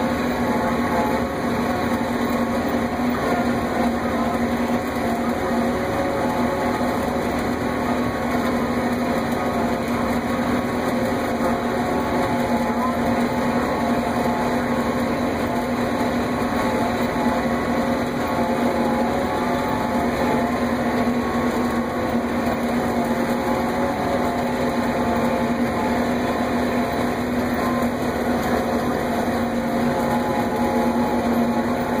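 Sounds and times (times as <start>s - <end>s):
swather engine droning: 0.0s - 32.0s.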